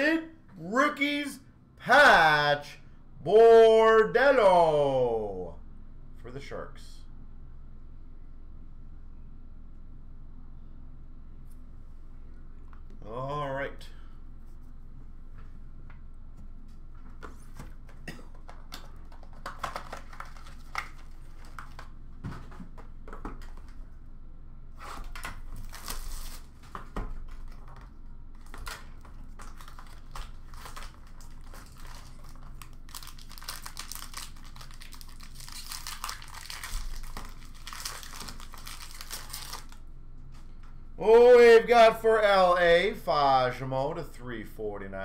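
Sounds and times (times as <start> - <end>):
plastic wrap crinkling and tearing: 18.5 - 22.0, 25.0 - 26.6, 28.4 - 39.8.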